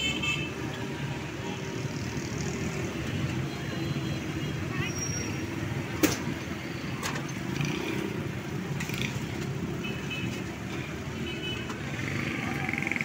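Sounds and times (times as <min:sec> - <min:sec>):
street traffic noise: 0:00.0 - 0:13.0.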